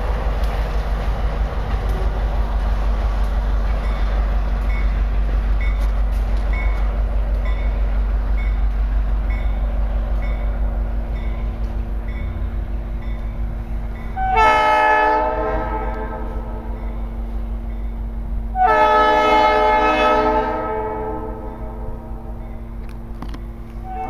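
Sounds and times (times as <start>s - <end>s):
freight train rumbling past: 0.0s - 24.0s
locomotive air horn blast: 14.1s - 16.8s, 18.5s - 22.3s.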